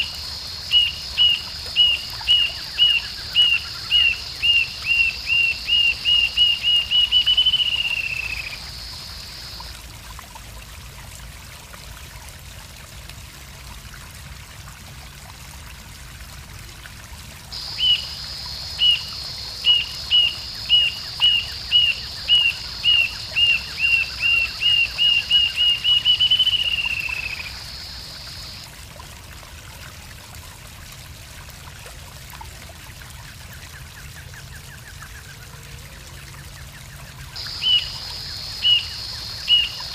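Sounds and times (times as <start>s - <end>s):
steady high hiss: 0.0s - 10.1s, 17.5s - 28.7s, 37.3s - 39.9s.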